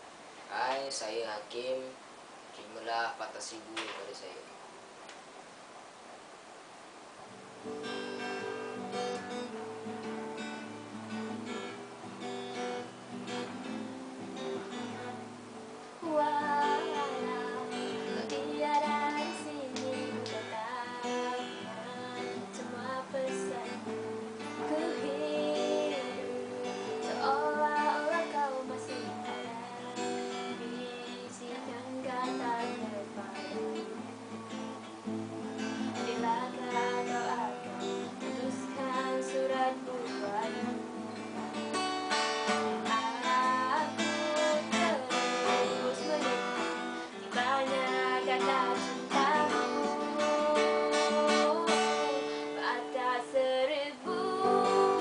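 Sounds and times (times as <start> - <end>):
acoustic guitar strumming: 7.3 - 55.0
woman singing: 14.6 - 34.1, 35.5 - 55.0.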